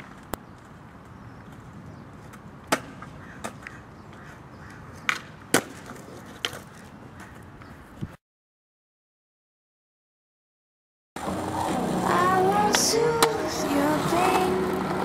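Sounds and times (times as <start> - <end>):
skateboard clacking on concrete: 1.5 - 7.5
skateboard landing crack: 2.2 - 3.8, 4.9 - 7.4.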